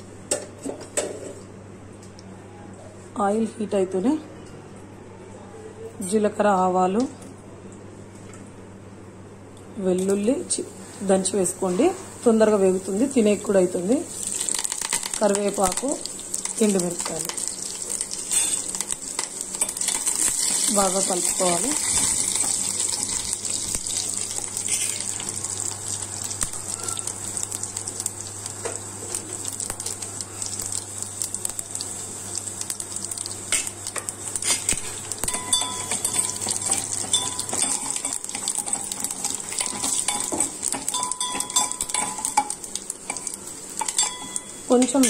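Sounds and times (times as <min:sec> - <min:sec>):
spices sizzling in hot oil: 0:09.9 - 0:45.0
spoon clinking and scraping pot: 0:24.6 - 0:25.1, 0:34.4 - 0:45.0.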